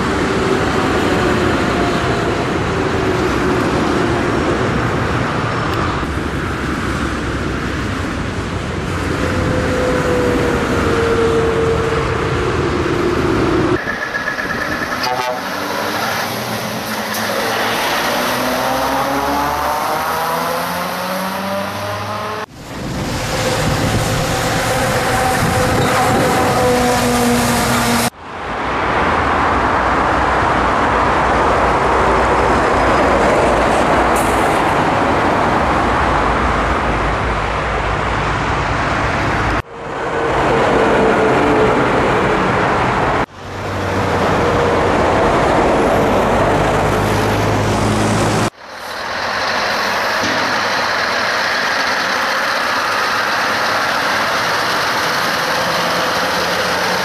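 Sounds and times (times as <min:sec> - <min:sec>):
diesel truck engine running: 0:22.5 - 0:27.9, 0:43.1 - 0:57.0.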